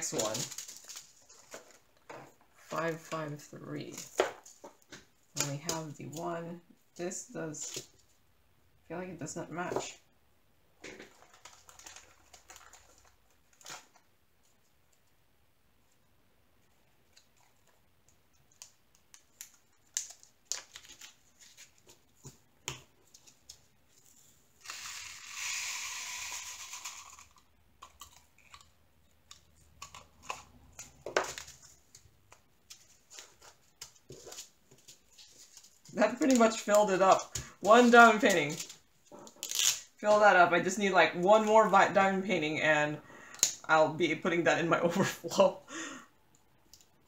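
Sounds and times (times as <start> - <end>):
plastic bags crinkling: 0.0 - 3.1, 10.8 - 14.0, 32.7 - 40.2
tiny beads poured into bag: 24.6 - 27.4.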